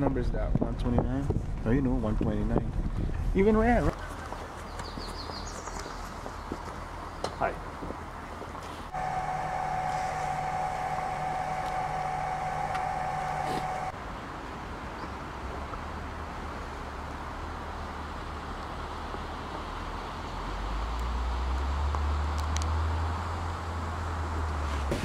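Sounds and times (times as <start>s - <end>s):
bus engine hum: 8.8s - 14.1s
steady electronic tone: 8.9s - 14.0s.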